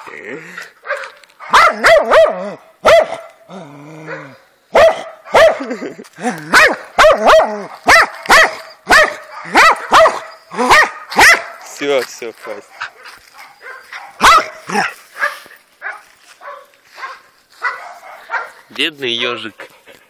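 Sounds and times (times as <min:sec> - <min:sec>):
dog barking excitedly: 0:00.8 - 0:03.4, 0:04.1 - 0:05.8, 0:06.5 - 0:11.8, 0:12.4 - 0:18.7.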